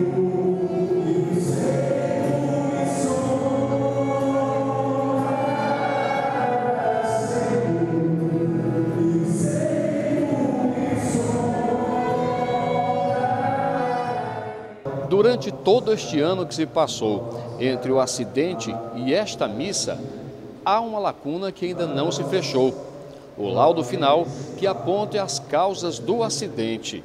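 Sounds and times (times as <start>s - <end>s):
group of voices singing a hymn: 0.0s - 15.0s, 21.8s - 26.1s.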